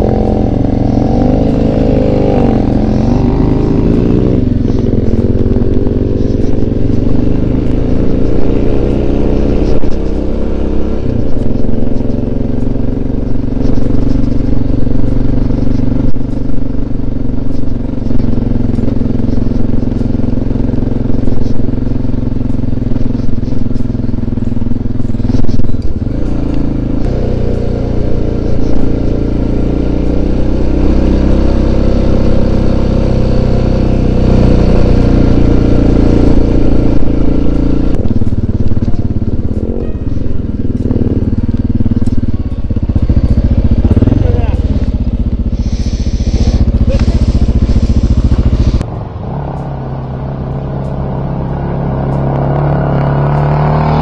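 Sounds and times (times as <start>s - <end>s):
dirt bike engine running: 0.0s - 54.0s.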